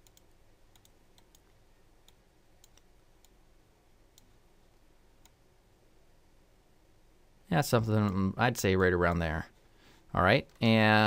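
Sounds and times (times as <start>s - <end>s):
computer mouse clicks: 0.0s - 3.4s, 4.1s - 4.4s, 5.2s - 5.4s.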